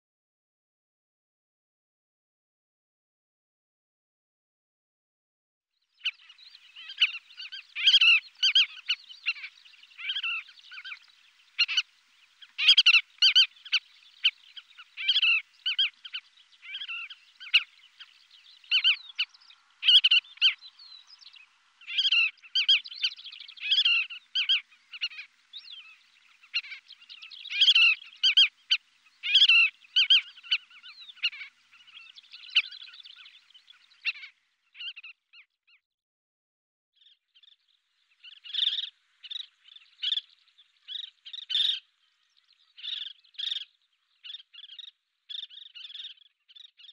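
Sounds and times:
bird calling in quick runs: 12.4s - 17.8s, 18.6s - 20.7s, 21.9s - 33.4s.

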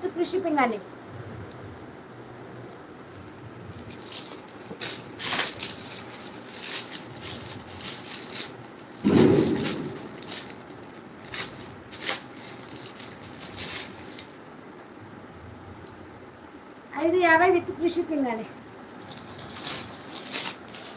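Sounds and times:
fabric rustling and scraping: 3.7s - 14.3s.

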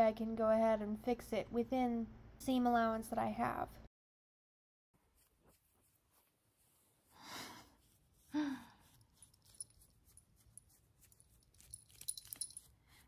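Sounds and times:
woman sighing: 8.3s - 8.8s.

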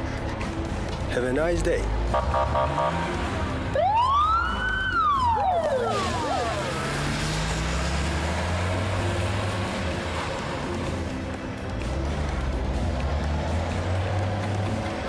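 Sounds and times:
vehicle engine running: 0.0s - 15.0s
siren wail: 2.2s - 8.0s.

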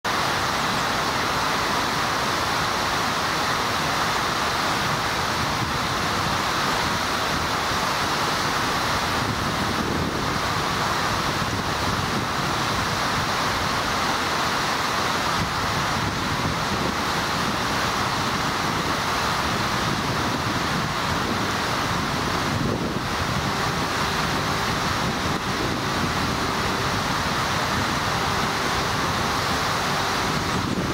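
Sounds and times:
steady rushing noise: 0.0s - 30.9s.

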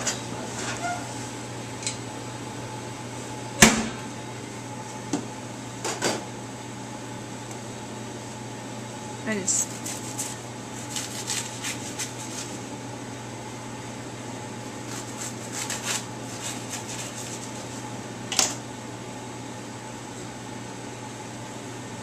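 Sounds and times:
steady fan hum: 0.0s - 22.0s
knife cutting bread crust: 9.6s - 12.6s, 14.8s - 17.7s.

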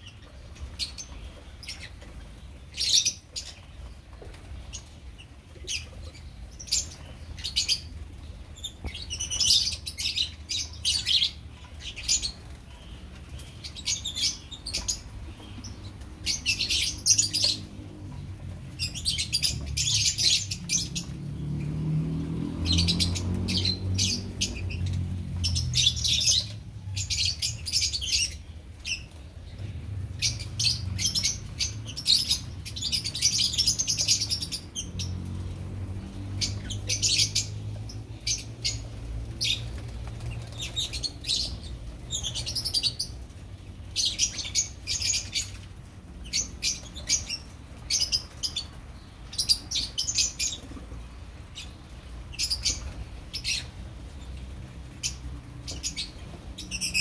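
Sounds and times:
lovebirds chirping: 0.0s - 57.0s
wings flapping: 38.5s - 43.4s.

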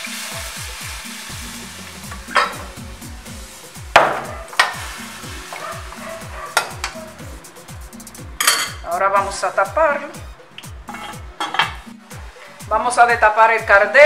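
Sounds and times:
water sizzling in a hot pot: 0.0s - 7.0s
background music with steady beat: 0.0s - 14.0s
metal ladle clanking against pot: 8.4s - 8.8s.

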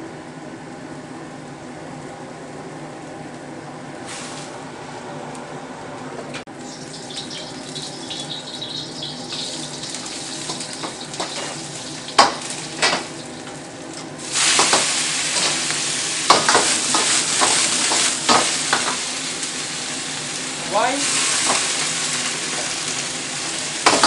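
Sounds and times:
loud sizzle: 3.8s - 5.4s, 6.4s - 24.0s
garlic frying gently: 6.5s - 24.0s.

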